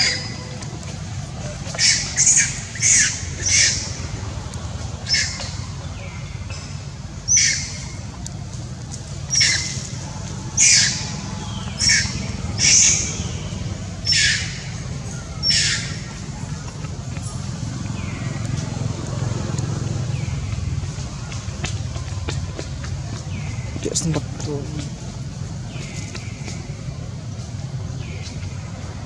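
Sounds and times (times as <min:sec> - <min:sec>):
baby monkey screaming shrilly: 0:01.8 - 0:03.8, 0:09.3 - 0:09.8, 0:10.6 - 0:11.1, 0:11.8 - 0:13.1, 0:14.0 - 0:14.6, 0:15.4 - 0:16.0.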